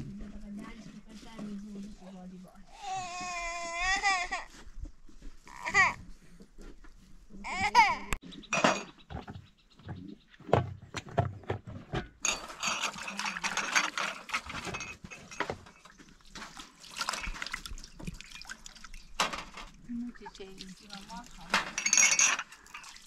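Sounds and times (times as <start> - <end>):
toddler crying: 2.8 - 4.6, 5.5 - 6.0, 7.4 - 8.2
water splashing in metal tray: 15.7 - 23.0.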